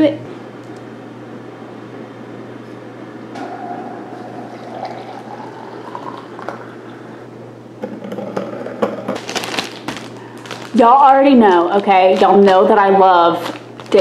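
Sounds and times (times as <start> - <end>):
water pouring into glass: 3.5 - 7.1
plastic bag crinkling: 9.2 - 14.0.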